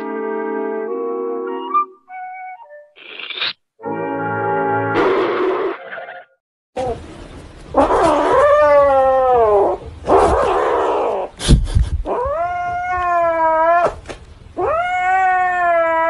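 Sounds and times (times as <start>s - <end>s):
kitten yowling: 7.8s - 11.3s, 12.1s - 14.0s, 14.6s - 16.0s.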